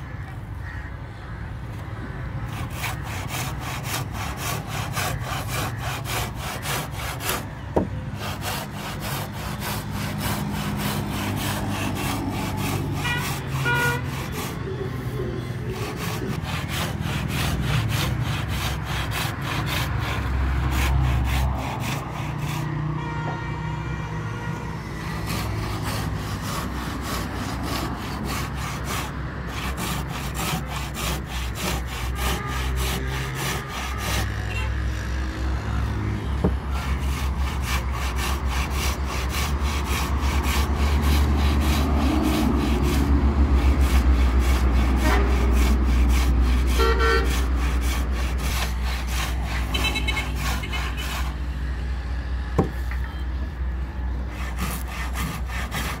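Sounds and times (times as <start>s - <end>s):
road traffic rumbling: 0.0s - 56.0s
hand saw cutting wood: 2.5s - 22.9s, 24.8s - 34.9s, 36.4s - 51.6s, 54.3s - 56.0s
vehicle horn honking: 12.9s - 16.1s, 22.9s - 25.0s, 32.1s - 35.0s, 45.0s - 45.6s, 46.7s - 47.4s, 49.6s - 51.2s, 53.0s - 53.5s.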